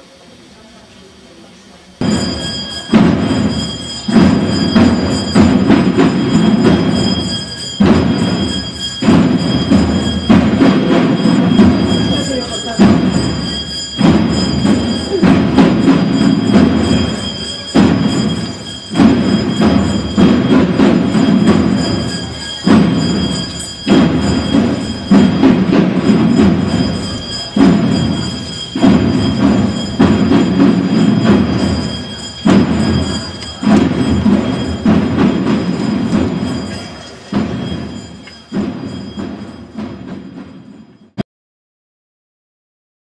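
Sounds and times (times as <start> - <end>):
muffled procession drums: 2.0 - 41.2.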